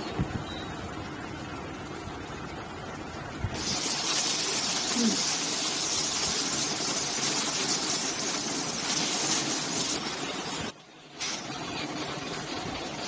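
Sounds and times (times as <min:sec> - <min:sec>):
water sizzling on hot griddle: 0:03.6 - 0:11.5.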